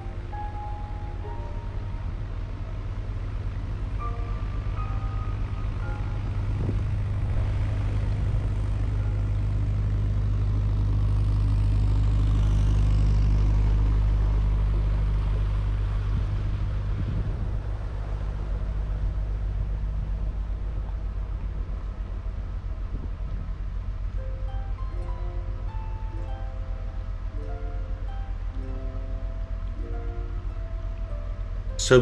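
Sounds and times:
diesel boat engine chugging: 0.0 - 32.0.

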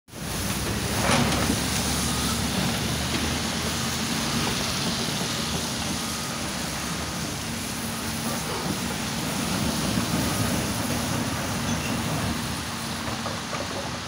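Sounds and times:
excavator diesel engine running: 0.1 - 14.0.

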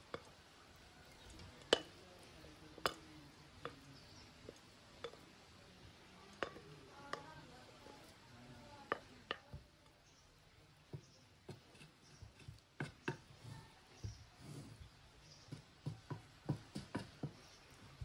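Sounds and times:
wooden spoon knocking on bowl and pot: 6.4 - 7.5, 8.8 - 9.7.

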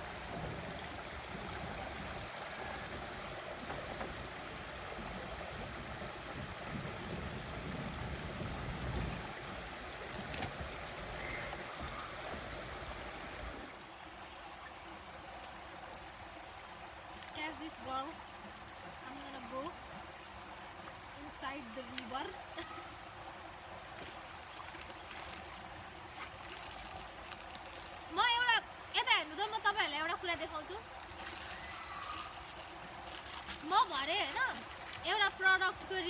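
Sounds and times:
creek splashing over stones: 0.0 - 36.0.

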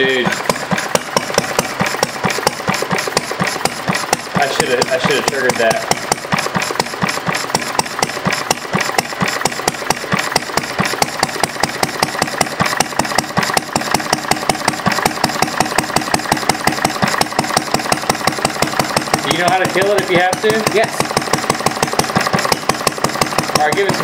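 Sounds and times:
single-cylinder engine running: 0.0 - 24.0.

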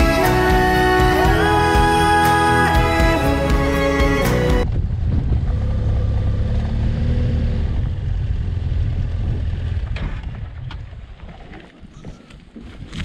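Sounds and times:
tyres on gravel road: 0.0 - 13.0
wind: 0.0 - 13.0
motorcycle engine running: 4.6 - 11.0.

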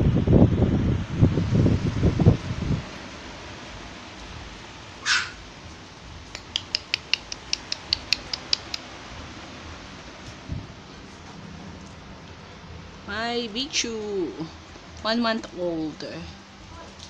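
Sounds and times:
puppy squeal: 5.0 - 5.4
puppy high-pitched squeaks: 5.1 - 5.4.

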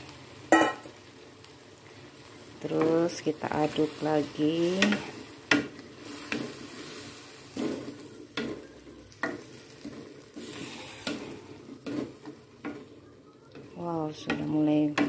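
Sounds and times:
food sizzling in a wok: 0.0 - 15.0
spatula scraping a pan: 3.6 - 13.0.

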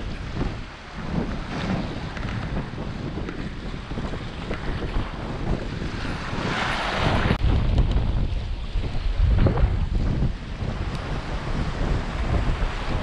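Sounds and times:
waves washing against concrete: 0.0 - 13.0
wind buffeting microphone: 0.0 - 13.0.

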